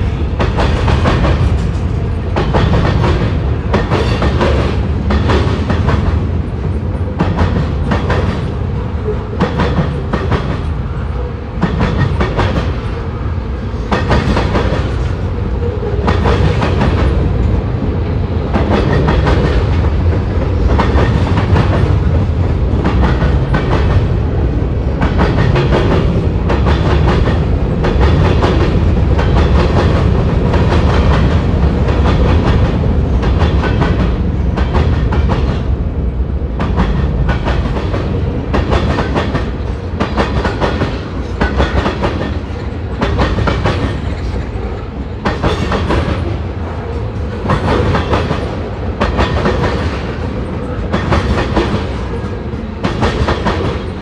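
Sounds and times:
train wheels clacking over rail joints: 0.0 - 10.8, 11.6 - 13.0, 13.8 - 17.6, 18.4 - 24.1, 24.9 - 35.7, 36.6 - 54.0
train rumble: 0.0 - 54.0.

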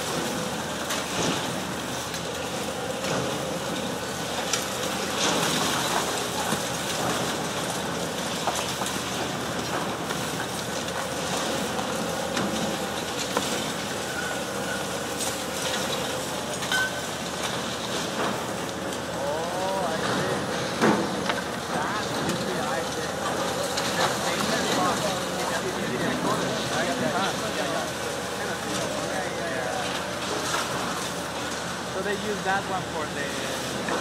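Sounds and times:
excavator machine hum: 0.0 - 34.0.

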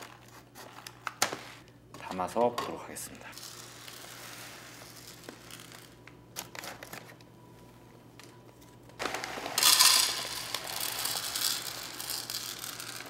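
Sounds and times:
cat litter granules pouring: 3.4 - 6.0, 9.0 - 13.0.

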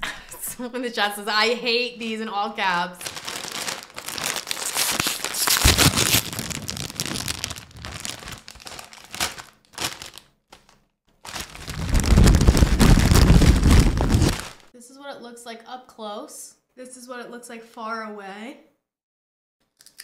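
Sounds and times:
chip bag crinkling and rustling: 3.0 - 14.7.

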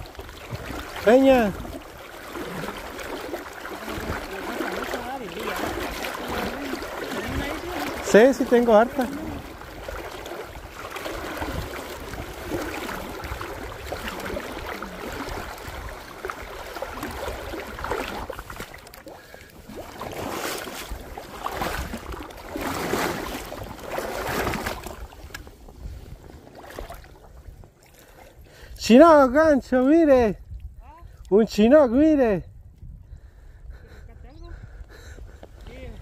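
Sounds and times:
river water washing: 0.0 - 25.6, 26.2 - 28.4
wind buffeting microphone: 0.0 - 36.0.

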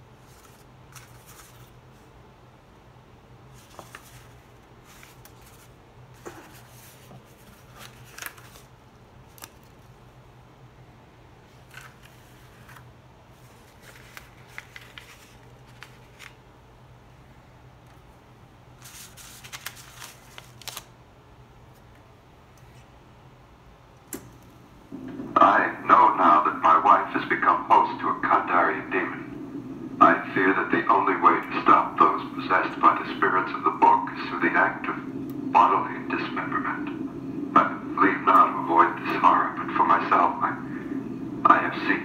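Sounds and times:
steady low hum: 0.0 - 42.0
parchment pages crackling: 0.2 - 1.8, 3.5 - 8.7, 9.3 - 9.9, 11.6 - 16.4, 18.8 - 20.9.

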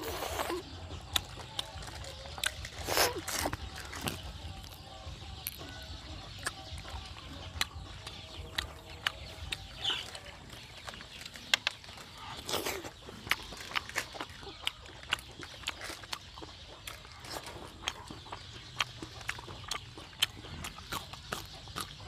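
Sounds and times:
lip smacks: 0.0 - 5.7
mouth clicks: 0.0 - 22.0
wet chewing: 0.0 - 22.0.

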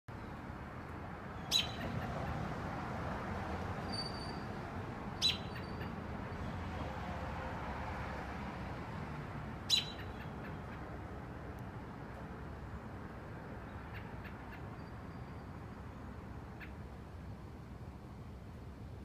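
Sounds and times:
robin calling: 1.3 - 2.4, 5.2 - 6.0, 9.6 - 10.9, 13.6 - 17.0.

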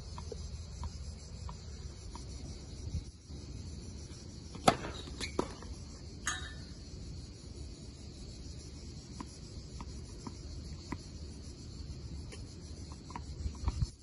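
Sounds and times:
tennis ball bouncing: 4.5 - 5.7
racket hitting tennis ball: 4.6 - 5.6.

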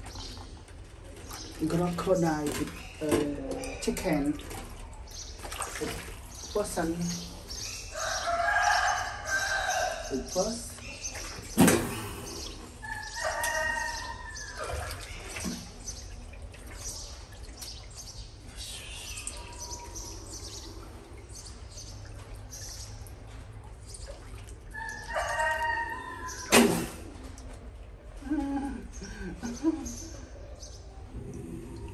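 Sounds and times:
rooster-like crowing: 13.0 - 14.8, 24.8 - 26.5.

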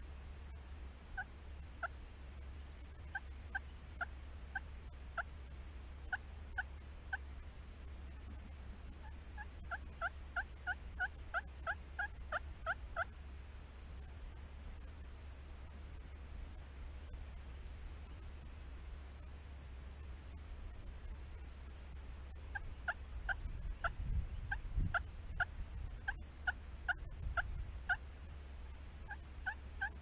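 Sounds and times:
turkeys yelping: 1.2 - 2.0, 3.0 - 5.3, 9.0 - 13.1, 22.4 - 28.0, 29.0 - 30.0.

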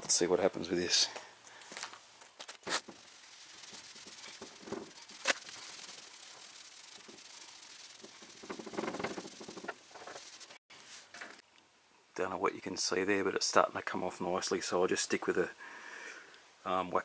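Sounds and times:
rag rubbing on metal door: 2.6 - 10.6.

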